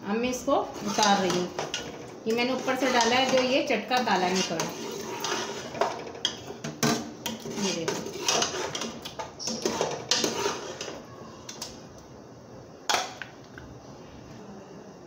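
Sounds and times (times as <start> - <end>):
metal ladle scraping a pot: 0.5 - 11.1.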